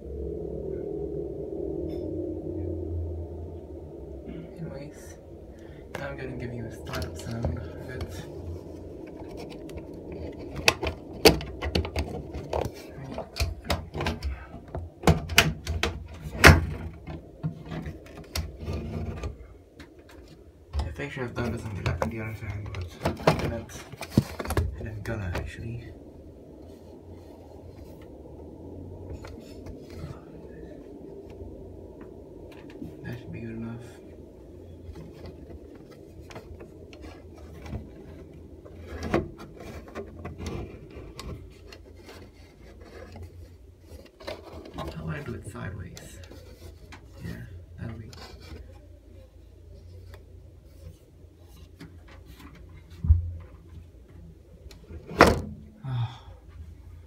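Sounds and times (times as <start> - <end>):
low hum: 0.0 - 57.0
rubbing and scraping: 6.0 - 25.8, 32.5 - 54.0.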